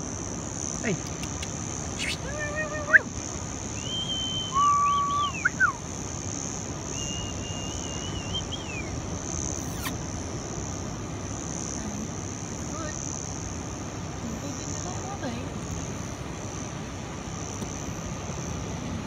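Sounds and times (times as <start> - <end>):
high-pitched insect buzzing: 0.0 - 16.7
whine-like animal calls: 0.8 - 5.9, 6.9 - 10.0.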